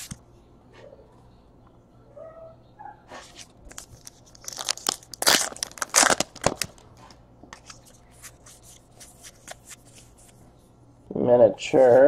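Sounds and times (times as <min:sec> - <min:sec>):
cards clicking and rustling: 0:03.3 - 0:06.8, 0:07.6 - 0:10.4
card wrapper crinkling: 0:03.4 - 0:06.9.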